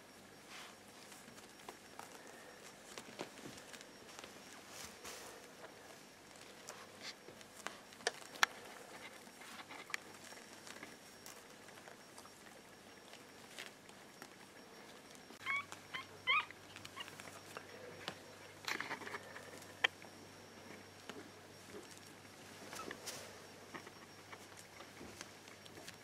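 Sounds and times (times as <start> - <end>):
puppies rustling on bedding: 0.4 - 14.4
puppies squeaking: 15.0 - 19.9, 21.6 - 26.0.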